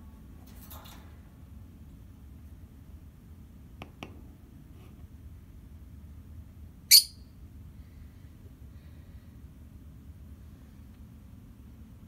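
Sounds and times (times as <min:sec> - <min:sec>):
parrot shrill chirp: 0:06.9 - 0:07.2.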